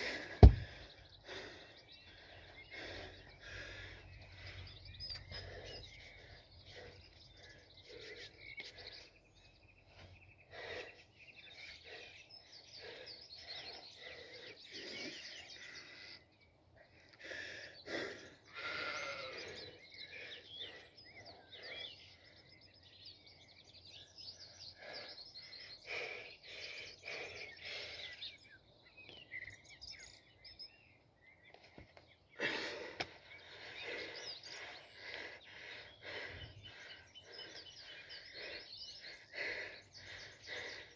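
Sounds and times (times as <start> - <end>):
birds singing and chirping: 0.0 - 40.9
stone lifted thud: 0.4 - 0.8
animal bleating: 18.5 - 19.6.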